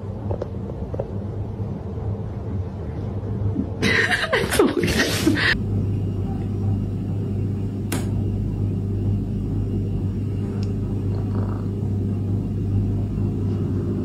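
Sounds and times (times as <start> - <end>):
steady low hum: 0.0 - 14.0
sharp click: 7.9 - 8.2.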